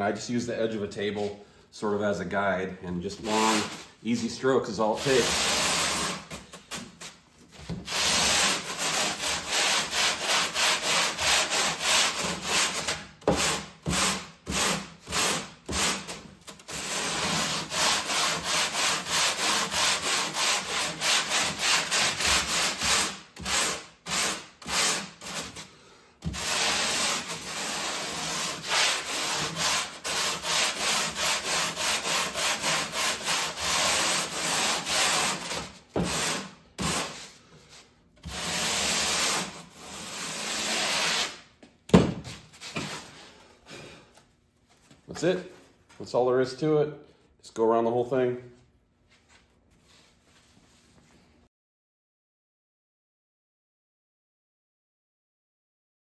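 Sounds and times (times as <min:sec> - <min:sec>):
sandpaper rasping on foam: 0:03.2 - 0:07.2, 0:07.9 - 0:41.4.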